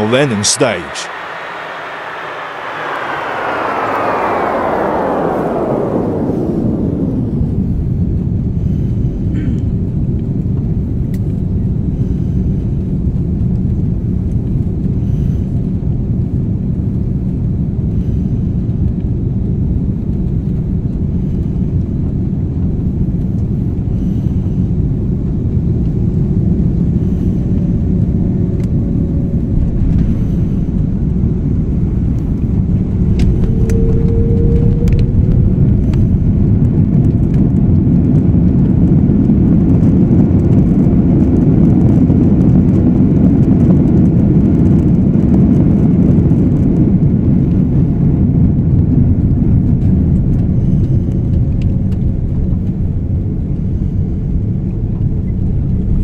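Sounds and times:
aircraft cabin engine rumble: 0:00.0 - 0:56.0.

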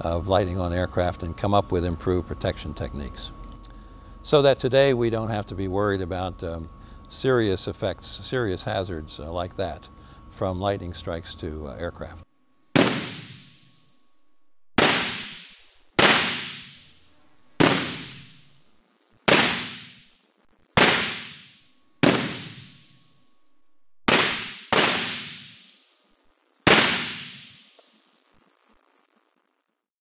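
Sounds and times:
electric arc cracks ringing: 0:11.5 - 0:14.1, 0:14.8 - 0:23.3, 0:24.0 - 0:29.8.

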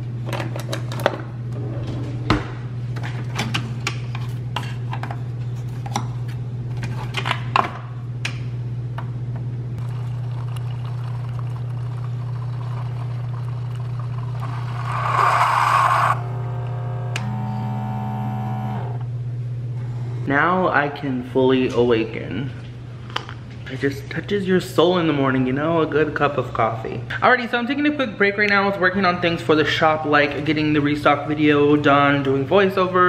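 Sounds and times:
steady low hum: 0:01.2 - 0:27.2
coffee streaming into mug: 0:09.8 - 0:16.1
coffee machine running: 0:09.8 - 0:19.1.

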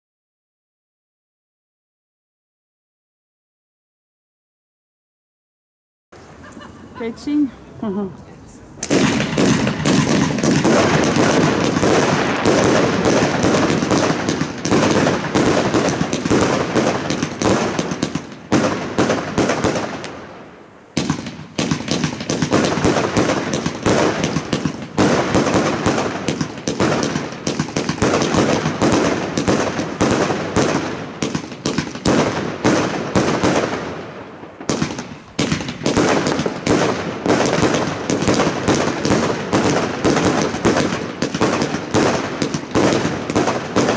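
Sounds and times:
fireworks launches and bursts: 0:08.8 - 0:43.9.

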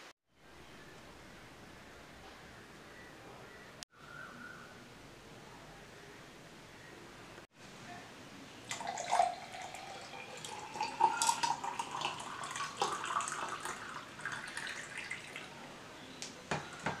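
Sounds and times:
juice pouring into a glass: 0:08.7 - 0:15.6.

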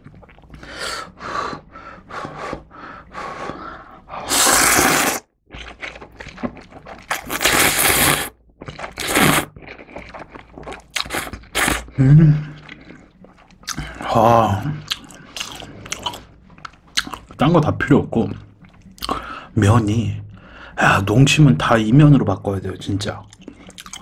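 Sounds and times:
wet chewing and smacking: 0:00.0 - 0:00.7, 0:05.5 - 0:17.5, 0:18.2 - 0:19.6, 0:23.0 - 0:24.0
slurping noodles: 0:00.0 - 0:17.3.

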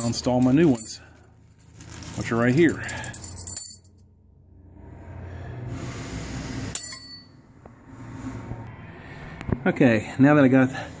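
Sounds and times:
rustling handling noise: 0:00.0 - 0:03.8
metallic clink: 0:02.6 - 0:04.0, 0:06.8 - 0:07.3.

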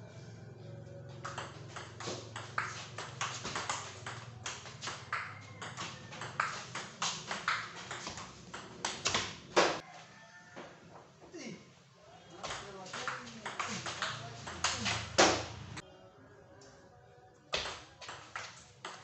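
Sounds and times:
ping-pong ball hits: 0:01.1 - 0:09.8, 0:12.4 - 0:15.8, 0:17.6 - 0:19.0.

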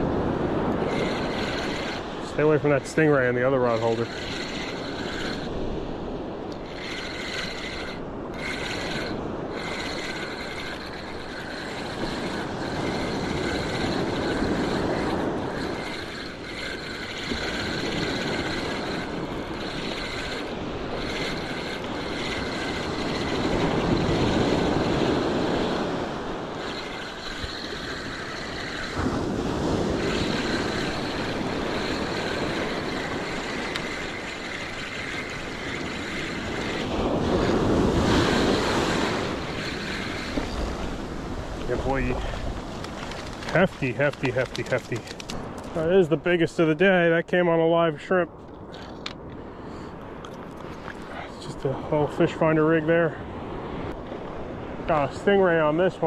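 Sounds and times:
spinning reel whining: 0:00.0 - 0:46.6
wind buffeting microphone: 0:00.0 - 0:47.0
surf breaking on beach: 0:07.0 - 0:45.5.

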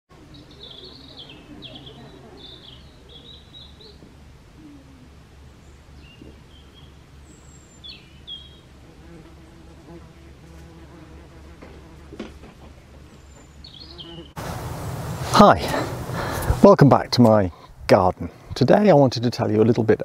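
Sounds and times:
songbird singing: 0:00.1 - 0:09.2, 0:12.7 - 0:18.5
low outdoor background hum: 0:00.1 - 0:20.0.

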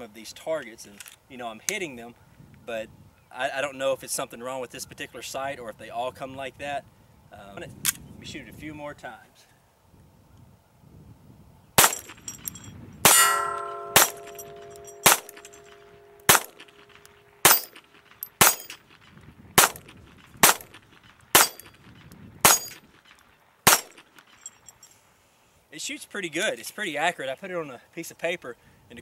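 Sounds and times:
pistol shots: 0:11.8 - 0:12.2, 0:13.1 - 0:18.9, 0:19.6 - 0:21.7, 0:22.4 - 0:22.8, 0:23.6 - 0:24.0
bullets clanging on steel targets: 0:11.8 - 0:18.9, 0:19.6 - 0:20.8, 0:21.4 - 0:21.8, 0:22.4 - 0:24.9.

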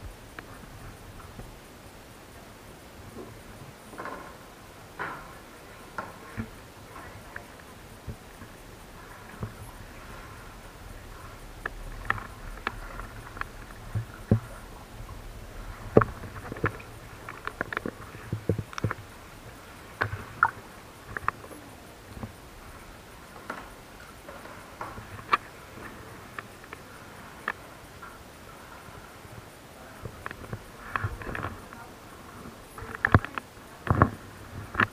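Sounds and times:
low steady background: 0:00.0 - 0:34.9
paddle knocking against kayak hull: 0:09.0 - 0:26.0.

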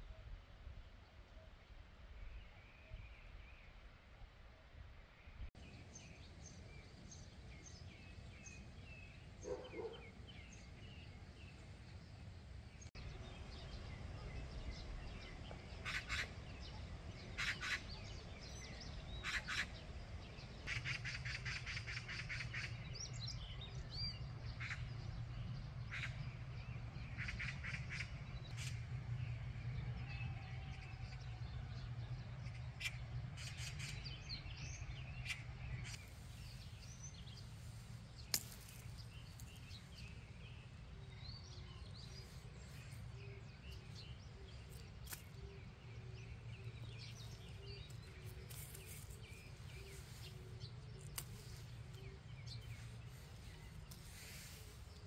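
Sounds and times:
faint high bird chirping: 0:07.6 - 0:11.6
harsh bird calls: 0:15.8 - 0:20.0.

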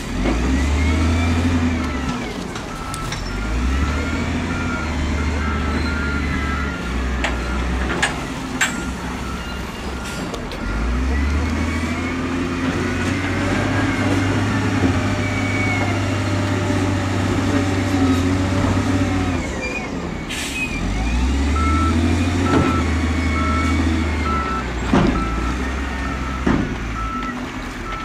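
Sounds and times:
heavy diesel engines running: 0:00.0 - 0:28.0
back-up alarm beeping: 0:02.7 - 0:07.8, 0:21.5 - 0:28.0.

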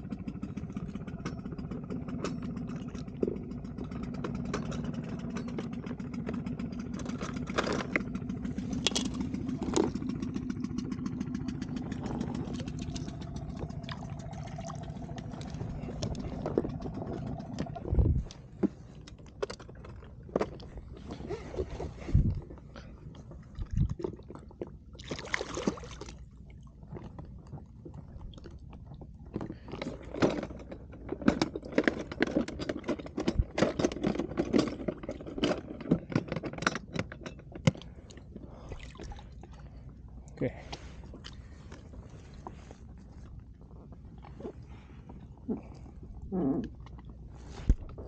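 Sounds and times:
short clicks and rattles: 0:00.0 - 0:23.8, 0:29.3 - 0:38.3
light water splashing: 0:23.5 - 0:26.6.

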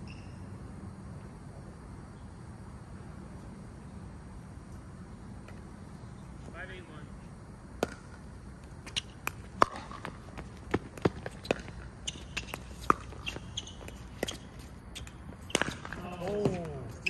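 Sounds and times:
ball bouncing on hard court: 0:07.8 - 0:08.2, 0:08.8 - 0:16.8.

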